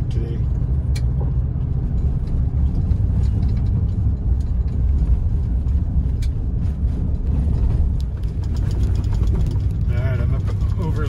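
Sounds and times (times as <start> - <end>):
vehicle rumbling on gravel road: 0.0 - 11.0
faint ticks and rattles: 7.9 - 11.0.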